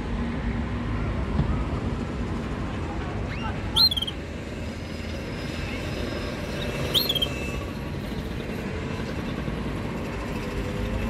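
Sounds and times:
canary chirp: 3.3 - 4.2, 6.5 - 7.6.

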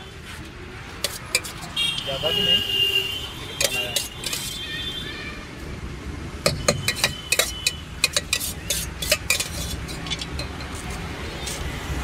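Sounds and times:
metal spoon clinking in steel bowl: 1.0 - 1.7, 3.6 - 4.6, 6.5 - 11.6.

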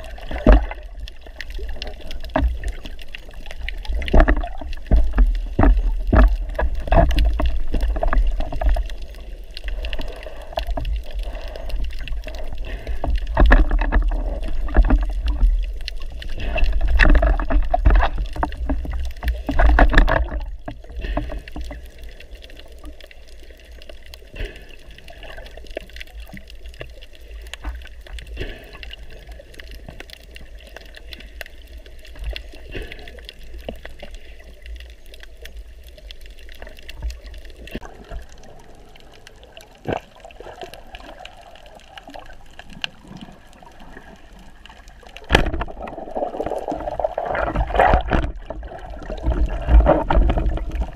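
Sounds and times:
underwater water rumble: 0.0 - 50.9
small knocks and clicks: 0.2 - 23.0.

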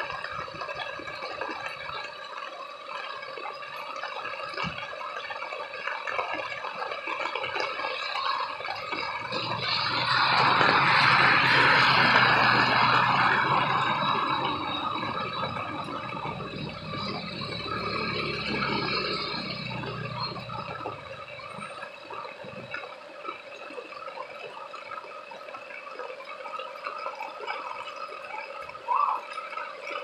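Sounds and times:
rain dripping and splashing on street: 0.0 - 30.0
motorcycle engine rumble passing: 8.2 - 22.6.

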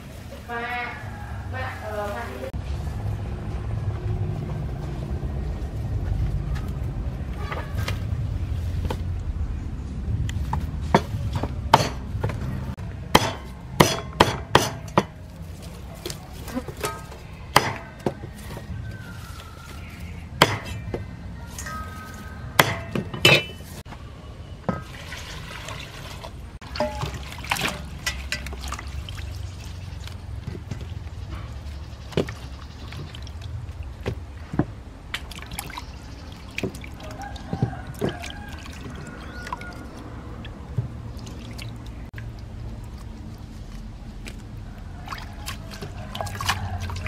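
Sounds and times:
water splashing in a basin: 24.7 - 31.3, 32.0 - 34.4, 35.0 - 47.0
water drips: 24.7 - 47.0.

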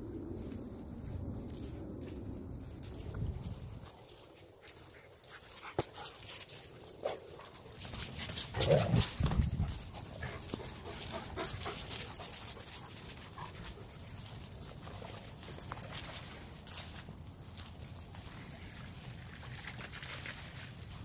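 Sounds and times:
footsteps in dry leaves: 0.0 - 21.0
dog panting: 9.6 - 14.1.

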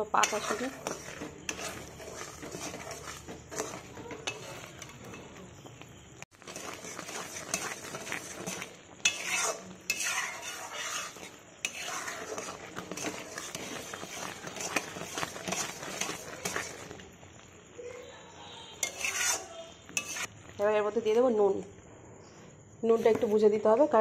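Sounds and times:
metal spatula scraping wok: 0.0 - 17.5, 18.4 - 21.2, 22.9 - 23.6
thick syrup bubbling: 0.4 - 17.6.

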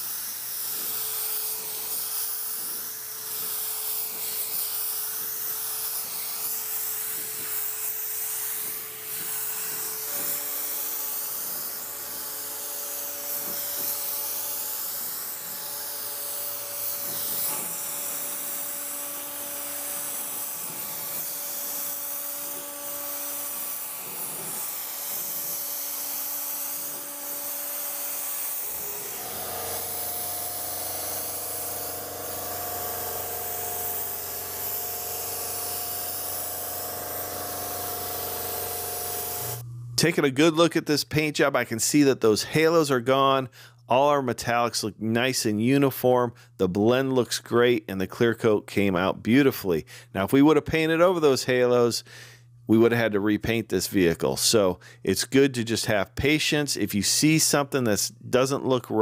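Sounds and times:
spray gun hissing: 0.0 - 39.6.

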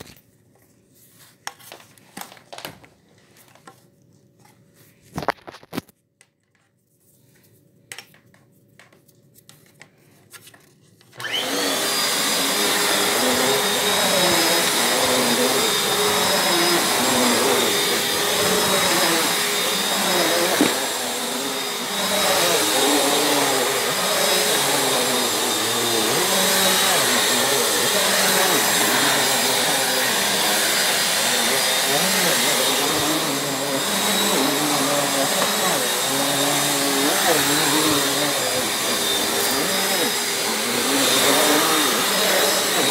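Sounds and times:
upright vacuum cleaner running: 11.1 - 42.9.

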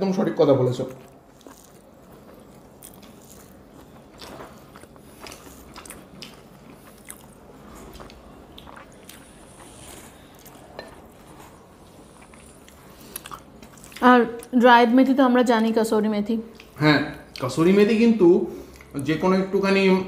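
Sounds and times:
chewing: 0.8 - 14.6, 16.4 - 17.7.

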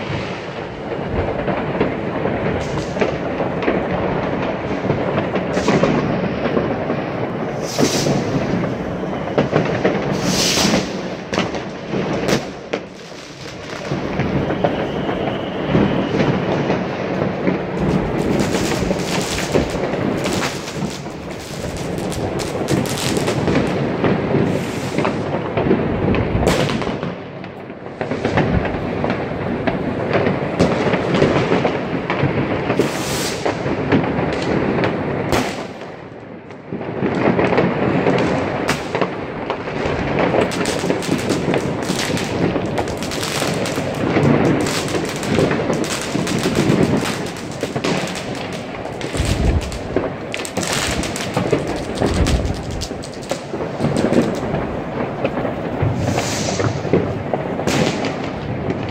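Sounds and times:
fireworks and firecrackers banging: 0.0 - 58.9.

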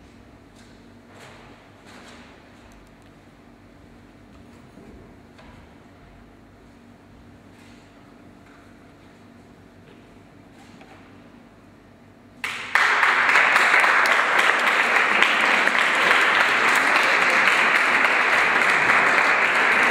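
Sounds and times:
small audience applauding: 12.4 - 19.9.

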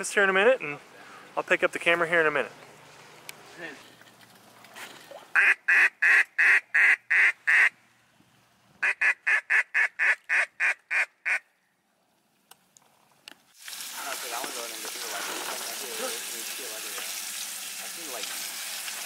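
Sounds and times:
duck call quacks: 5.3 - 7.8, 8.8 - 11.5.

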